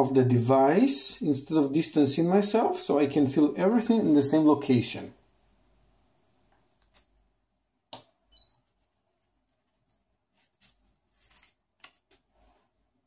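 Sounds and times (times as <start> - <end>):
high-pitched electronic beep: 8.3 - 8.6.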